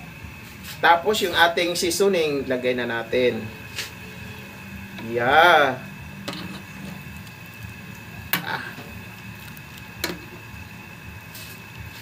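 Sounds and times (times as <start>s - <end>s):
metal ladle stirring soup: 6.2s - 10.6s.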